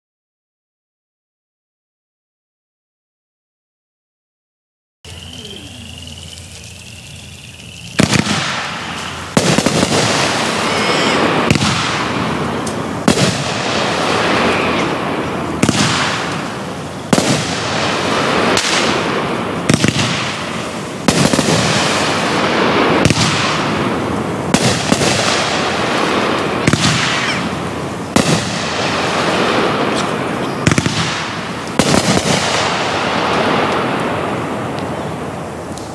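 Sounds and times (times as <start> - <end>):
firework cake bangs: 7.9 - 35.3.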